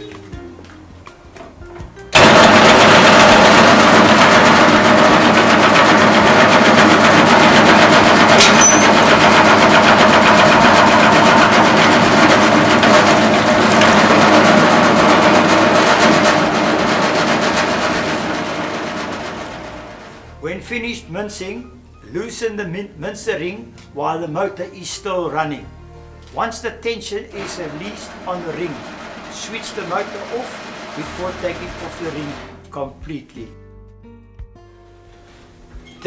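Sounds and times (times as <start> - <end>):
meat mincer clatter and hum: 2.1 - 20.3, 27.3 - 32.7.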